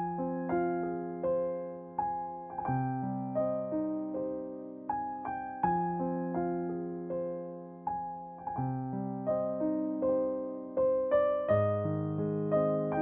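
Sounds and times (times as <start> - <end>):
keyboard melody: 0.0 - 13.0.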